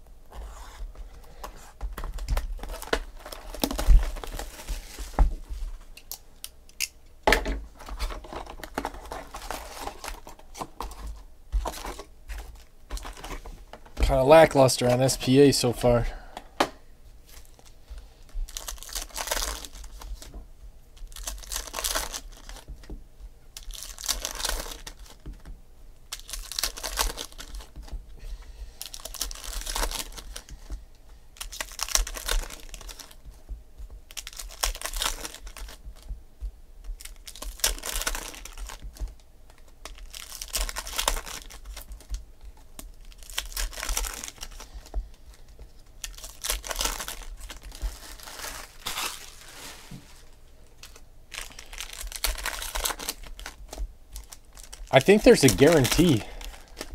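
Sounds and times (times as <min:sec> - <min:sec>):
foil wrappers tearing and crinkling: 0:01.4 - 0:06.2, 0:07.8 - 0:13.5, 0:18.4 - 0:20.3, 0:21.0 - 0:22.8, 0:23.5 - 0:28.0, 0:28.8 - 0:30.7, 0:31.3 - 0:33.4, 0:34.0 - 0:36.1, 0:36.8 - 0:56.9.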